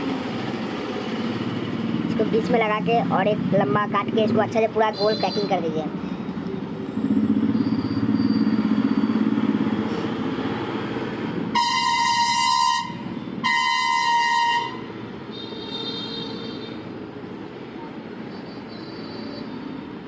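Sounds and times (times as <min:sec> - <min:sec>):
vehicle engine rumbling: 0:00.0 - 0:20.0
higher-pitched honk: 0:11.6 - 0:16.8
vehicle horn honking: 0:11.6 - 0:16.8.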